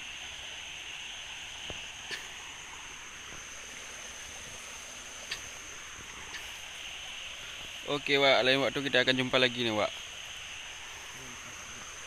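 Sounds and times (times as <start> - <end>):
insect drone: 0.0 - 12.0
light rain: 0.0 - 12.0
faint clicks: 5.2 - 5.5.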